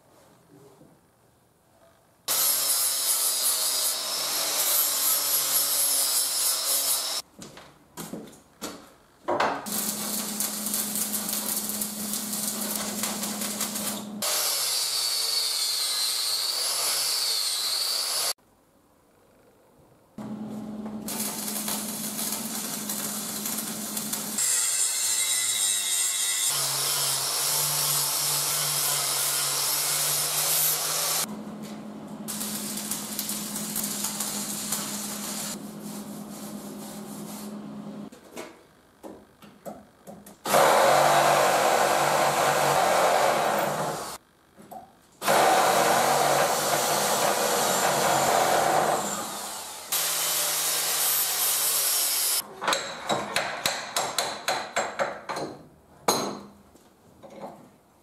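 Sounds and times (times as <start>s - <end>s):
angle grinder grinding metal: 2.3s - 7.2s, 21.1s - 31.3s.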